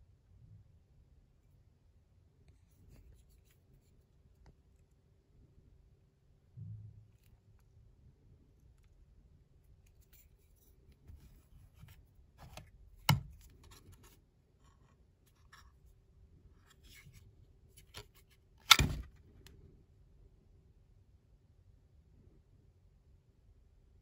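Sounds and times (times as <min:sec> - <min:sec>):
sharp click of knife sheath: 0:17.9 - 0:19.1.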